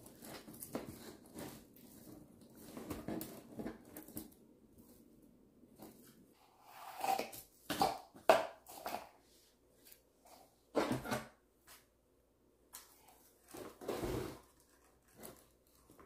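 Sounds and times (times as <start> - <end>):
rustling artificial pine: 12.8 - 16.0.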